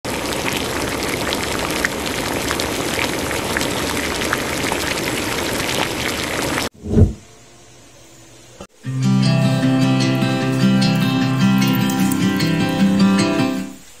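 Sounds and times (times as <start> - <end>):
water boiling in a pot: 0.1 - 6.7.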